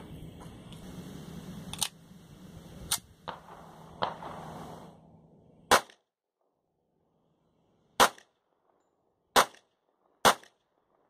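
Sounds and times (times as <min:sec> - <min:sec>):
pistol shots: 0:03.2 - 0:04.7, 0:05.7 - 0:06.0, 0:08.0 - 0:08.3, 0:09.3 - 0:10.6.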